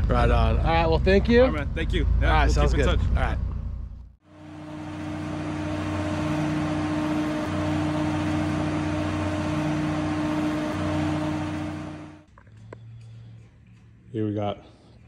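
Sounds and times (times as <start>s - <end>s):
travel lift engine and hydraulic drone: 4.3s - 12.3s.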